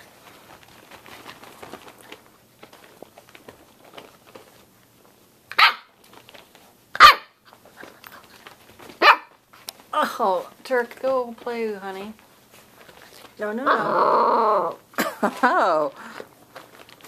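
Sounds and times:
puppies scuffling on blankets: 0.0s - 17.0s
puppy barking: 5.5s - 6.0s, 7.0s - 7.4s, 9.0s - 9.4s.

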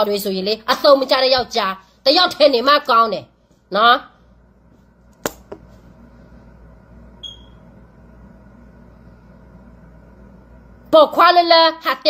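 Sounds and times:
low steady hum: 0.0s - 12.0s
short high electronic beep: 7.2s - 7.6s.

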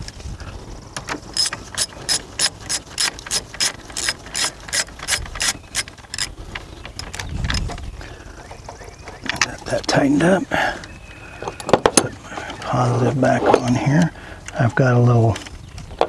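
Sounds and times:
socket ratchet clicking: 1.4s - 7.7s.

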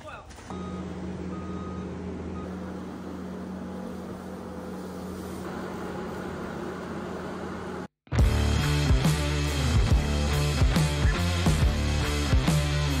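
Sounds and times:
diesel engine droning: 0.5s - 13.0s.

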